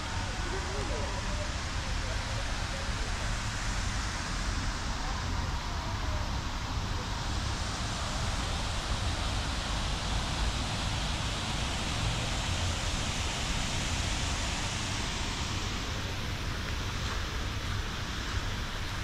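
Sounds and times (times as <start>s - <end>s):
fountain spray hissing: 0.0s - 19.0s.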